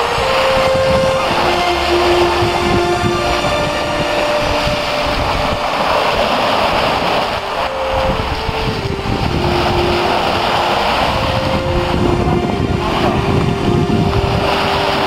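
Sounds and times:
waves washing onto shingle beach: 0.0s - 15.0s
wind buffeting microphone: 0.0s - 15.0s.

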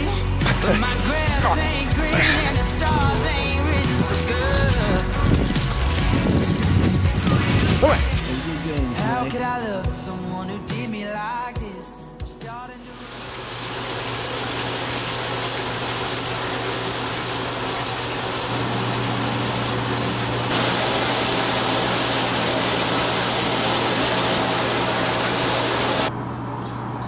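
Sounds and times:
running water rushing: 12.9s - 26.1s.

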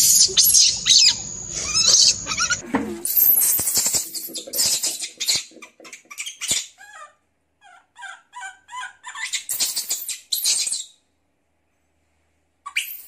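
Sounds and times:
short high squeaks: 0.0s - 5.5s.

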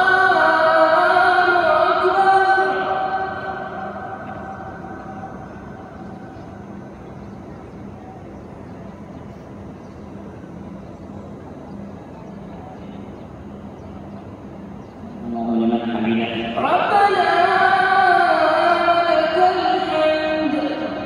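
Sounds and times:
crowd murmur: 2.0s - 17.0s.

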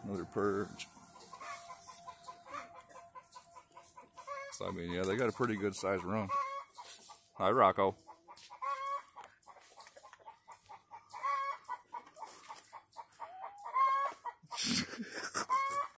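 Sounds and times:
chickens clucking: 0.0s - 16.0s
harsh chicken call: 0.4s - 3.3s, 4.2s - 4.8s, 6.2s - 6.7s, 13.2s - 16.0s.

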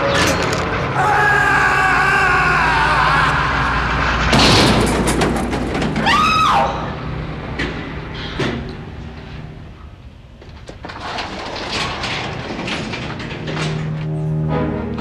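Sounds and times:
loud crash: 3.8s - 7.0s.

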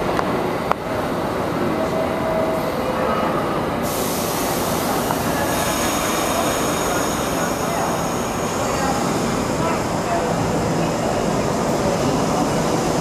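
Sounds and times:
subway train rumble: 0.0s - 13.0s
sudden hiss: 3.8s - 9.2s.

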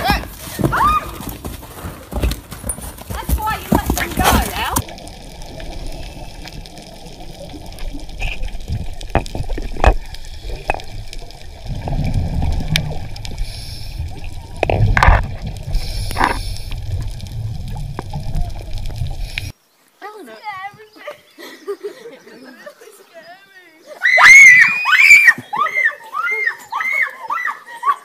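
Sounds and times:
bursts of bubbles: 4.6s - 19.5s
low underwater rumble: 4.8s - 19.5s
underwater gurgling water: 4.8s - 19.5s.

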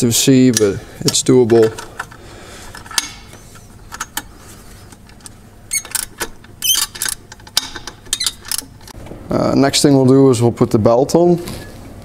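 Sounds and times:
wrench clicking on bolts: 5.2s - 8.7s.

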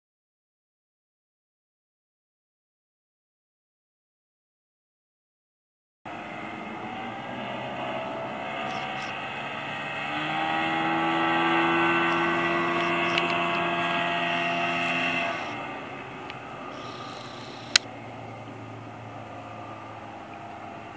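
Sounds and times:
outboard motor running: 6.1s - 20.9s.

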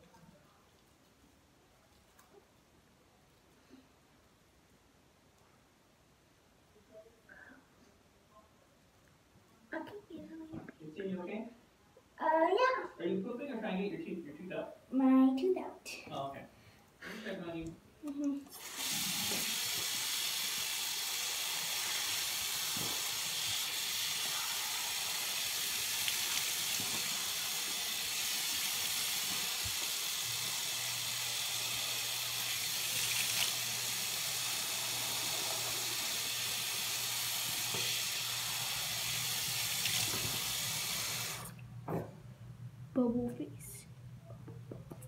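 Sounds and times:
tap water running into sink: 18.6s - 41.6s.

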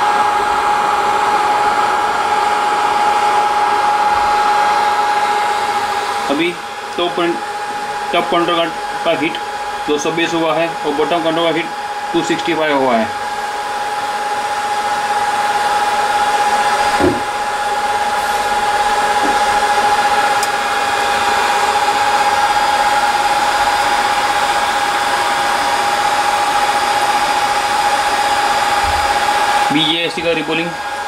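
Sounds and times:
hot-air blower rushing with whine: 0.0s - 31.0s
short knock: 17.0s - 17.3s.

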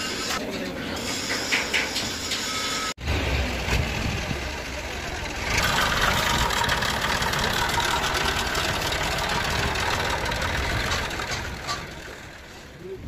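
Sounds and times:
truck diesel engine idling: 3.5s - 12.8s.

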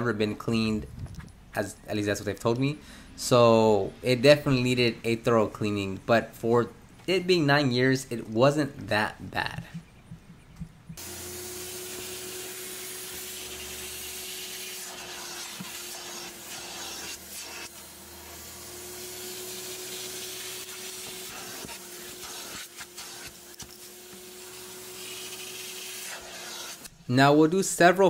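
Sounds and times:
carpet extractor motor hum: 9.7s - 13.6s, 17.8s - 20.3s
spray and suction hiss: 11.0s - 17.7s, 24.9s - 27.0s.

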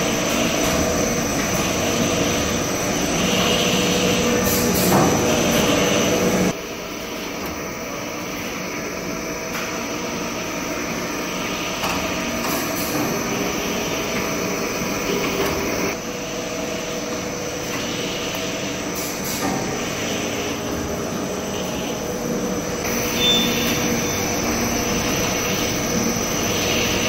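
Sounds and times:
machinery hum and whir: 0.0s - 27.0s.

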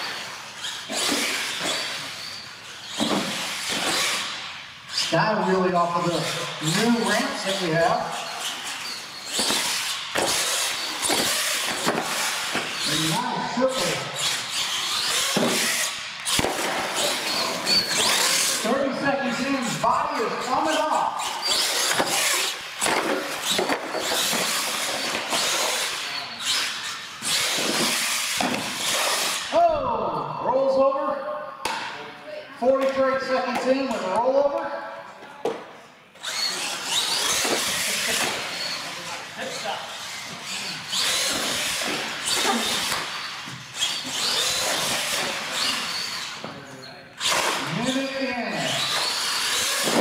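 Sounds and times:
toy truck motor whining: 0.0s - 5.2s, 6.0s - 19.0s, 19.7s - 29.5s, 36.2s - 48.0s, 48.7s - 50.0s
toy truck motor whine and hiss: 40.5s - 46.4s.

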